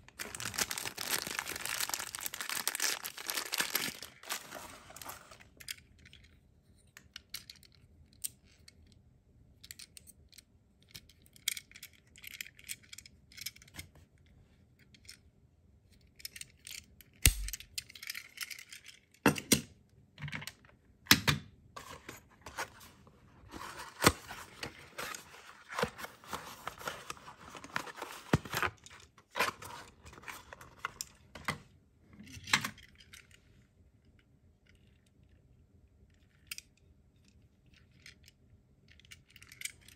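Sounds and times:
plastic wrapping crinkling: 0:00.0 - 0:05.4.

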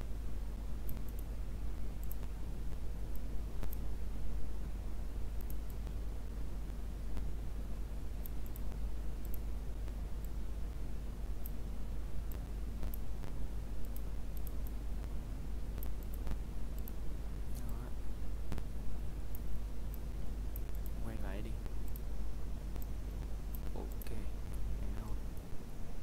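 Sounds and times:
low hum and hiss: 0:00.0 - 0:26.0
computer mouse clicking: 0:00.8 - 0:01.3, 0:02.0 - 0:02.3, 0:03.1 - 0:03.8, 0:05.4 - 0:05.9, 0:08.2 - 0:10.3, 0:13.8 - 0:14.8, 0:15.8 - 0:17.8.

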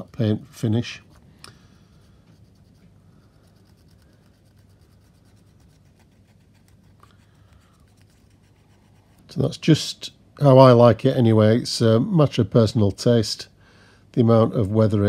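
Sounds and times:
cotton bud scratching on plastic: 0:02.0 - 0:09.4.

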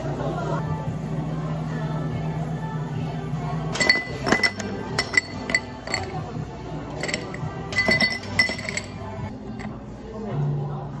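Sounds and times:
ice cubes clinking in glasses: 0:07.0 - 0:09.0.

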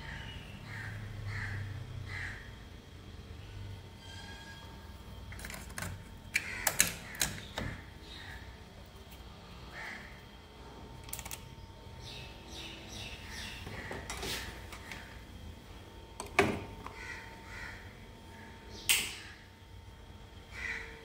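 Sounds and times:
caw-like bird calls: 0:00.0 - 0:02.6, 0:06.4 - 0:08.7, 0:09.5 - 0:10.4, 0:12.0 - 0:15.2, 0:16.9 - 0:19.5, 0:20.4 - 0:21.0.

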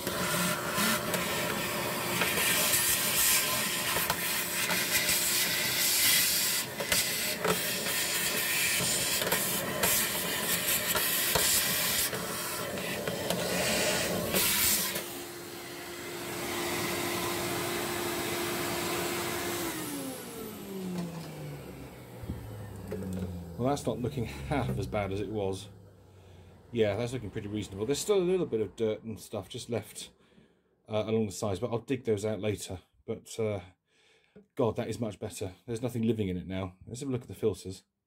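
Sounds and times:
vacuum cleaner running: 0:00.0 - 0:28.6
vacuum motor running down: 0:06.6 - 0:28.5.

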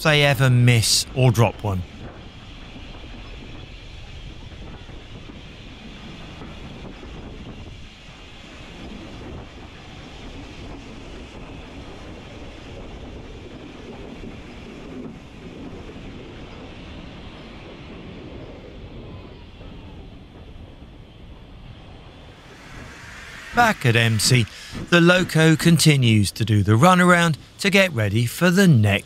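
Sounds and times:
wind on microphone: 0:01.8 - 0:26.2
steam train rumbling: 0:21.9 - 0:28.5.

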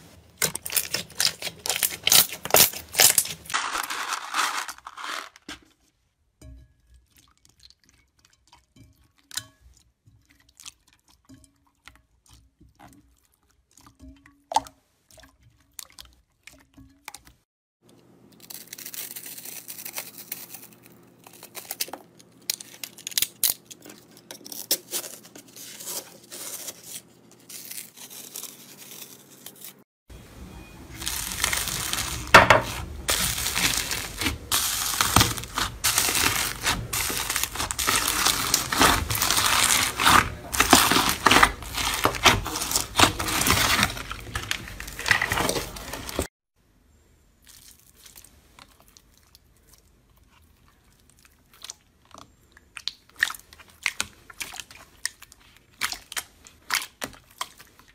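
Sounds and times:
hands squishing slime: 0:00.4 - 0:05.2, 0:31.0 - 0:46.3, 0:47.5 - 0:57.9
crunching plastic pieces in slime: 0:00.4 - 0:05.6, 0:18.3 - 0:29.7, 0:30.9 - 0:46.3, 0:47.4 - 0:57.9.

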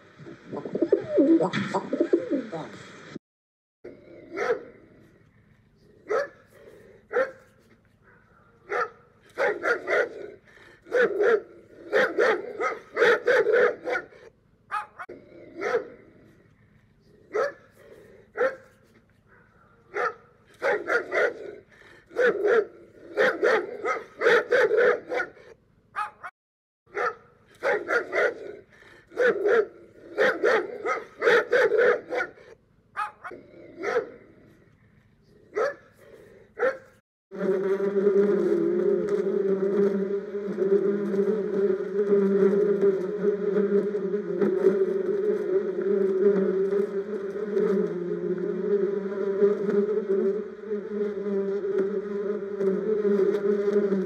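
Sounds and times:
dog barking: 0:04.3 - 0:04.8, 0:06.1 - 0:06.5, 0:07.1 - 0:16.0, 0:17.3 - 0:17.7, 0:18.4 - 0:26.3, 0:26.9 - 0:34.2, 0:35.5 - 0:36.0, 0:36.6 - 0:36.9.

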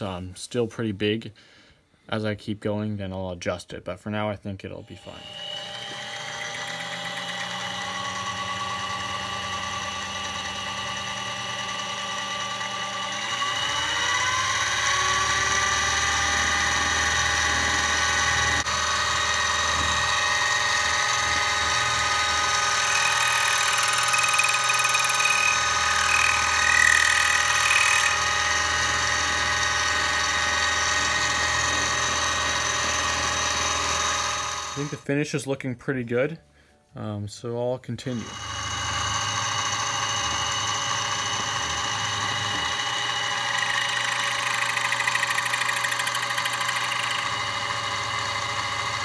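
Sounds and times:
harsh high cutting noise: 0:04.8 - 0:35.0, 0:38.0 - 0:49.0
milling machine motor whine: 0:04.9 - 0:35.0, 0:38.1 - 0:49.0.

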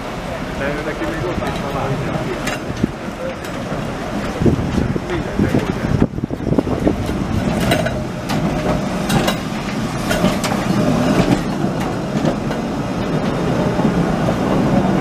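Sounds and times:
tram rumbling on rails: 0:00.0 - 0:15.0
wheels clicking on track: 0:00.0 - 0:15.0.

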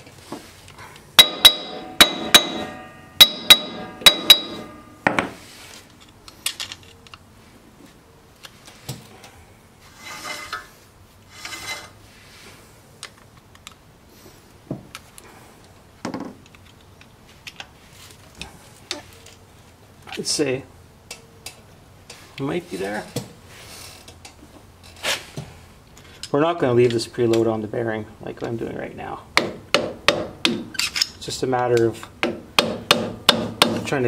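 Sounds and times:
metal rubbing and scraping: 0:09.8 - 0:12.3.

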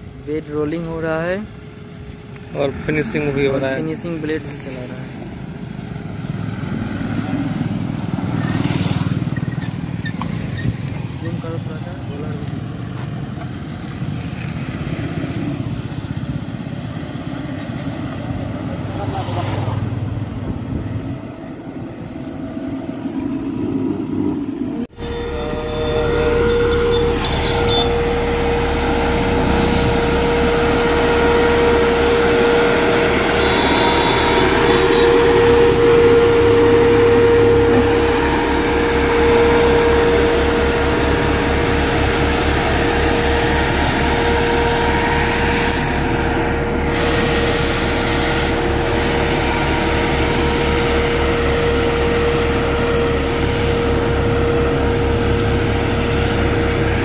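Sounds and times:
road roller diesel engine: 0:00.0 - 0:57.0
steady humming tone: 0:24.9 - 0:57.0.

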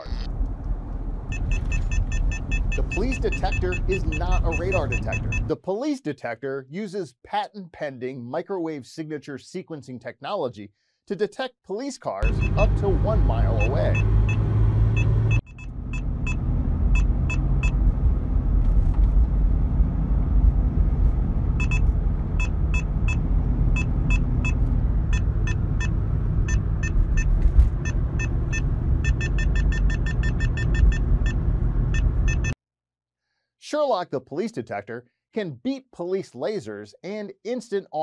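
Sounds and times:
car rumbling on road: 0:00.0 - 0:05.5, 0:12.2 - 0:32.6
detector alert beeps: 0:01.3 - 0:05.5, 0:12.2 - 0:14.4, 0:15.0 - 0:16.4, 0:21.6 - 0:21.8, 0:23.8 - 0:32.6.

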